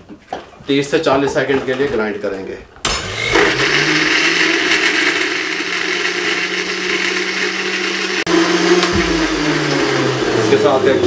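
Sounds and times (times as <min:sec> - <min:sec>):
electric blender whirring: 0:02.9 - 0:11.0.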